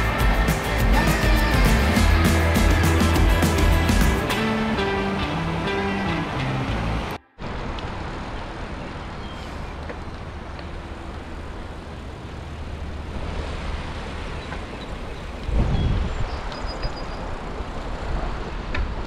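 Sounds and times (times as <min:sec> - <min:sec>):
wind rumble on microphone: 0:07.4 - 0:19.0.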